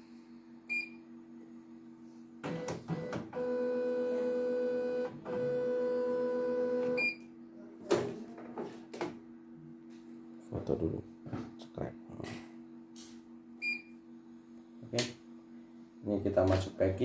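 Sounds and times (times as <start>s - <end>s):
embroidery machine motor whine: 2.5s - 7.0s.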